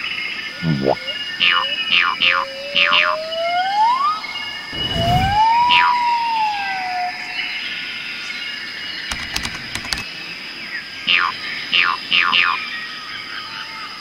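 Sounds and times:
gliding tone: 0:04.4 - 0:07.4
low rumble: 0:04.6 - 0:06.4
clicks: 0:09.1 - 0:10.1.

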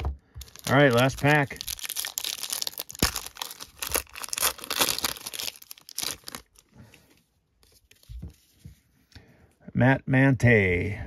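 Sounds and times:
foil wrapper tearing and crinkling: 0:00.4 - 0:06.7.

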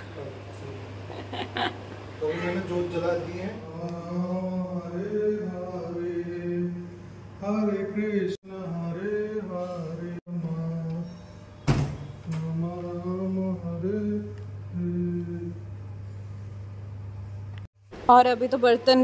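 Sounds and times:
steady low hum: 0:00.0 - 0:18.0
person singing slow chant: 0:12.3 - 0:15.6.

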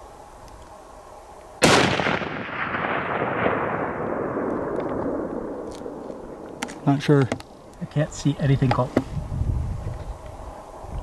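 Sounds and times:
rifle shot: 0:01.6 - 0:06.8
rolling echo: 0:01.6 - 0:07.8.

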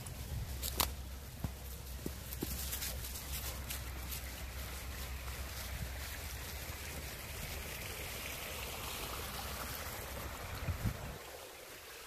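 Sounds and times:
steady rushing hiss: 0:00.0 - 0:12.0
wind rumbling on microphone: 0:09.6 - 0:11.4.

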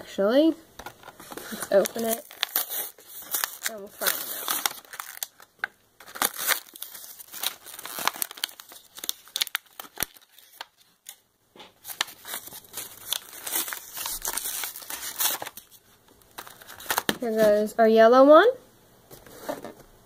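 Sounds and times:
packaging tearing: 0:00.8 - 0:11.2, 0:11.8 - 0:17.4
plastic packaging crinkling: 0:00.8 - 0:11.2, 0:11.8 - 0:17.7.

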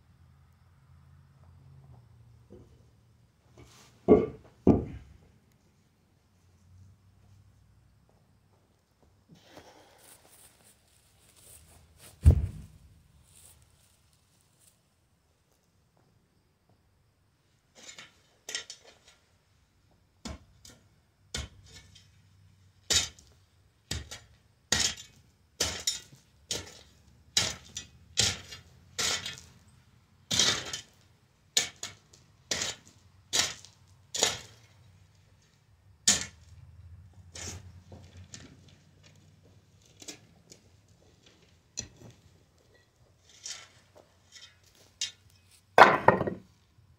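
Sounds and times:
shovel scraping into gravel: 0:24.0 - 0:29.6, 0:30.3 - 0:31.0, 0:31.6 - 0:34.8, 0:37.3 - 0:37.7, 0:43.2 - 0:45.6.

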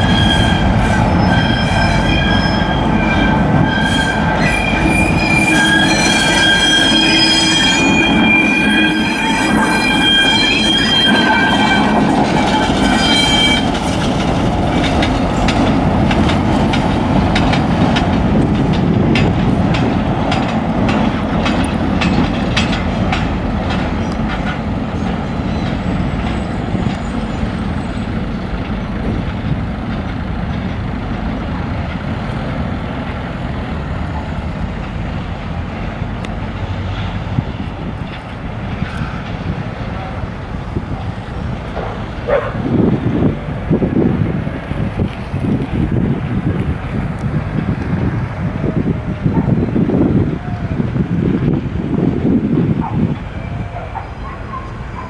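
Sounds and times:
wheels squealing: 0:00.0 - 0:15.1
wheels clicking over rail joints: 0:11.8 - 0:48.4.

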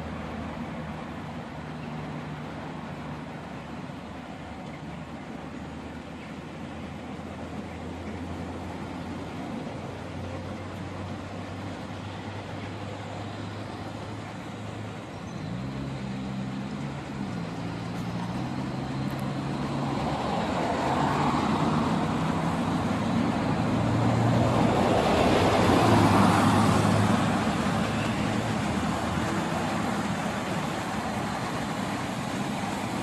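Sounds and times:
train running noise: 0:00.0 - 0:33.0.

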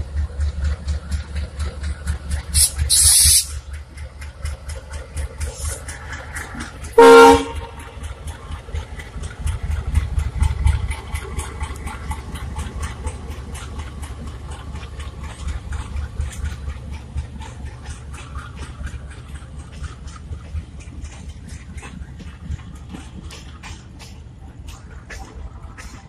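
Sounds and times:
passenger coaches rumbling past: 0:00.0 - 0:26.0
wheels clicking over rail joints: 0:00.0 - 0:26.0
locomotive horn blast: 0:07.0 - 0:07.9.

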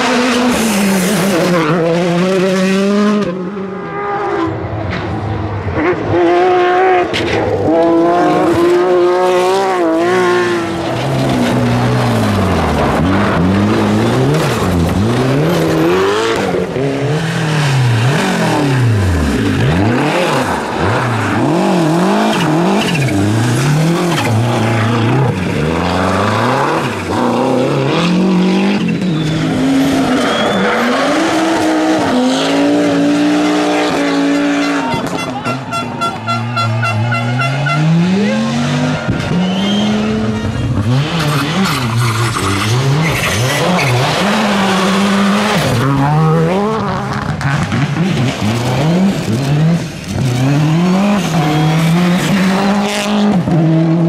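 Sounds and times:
rally car engines revving: 0:00.0 - 0:54.0
tyre and gravel noise: 0:07.0 - 0:33.8.

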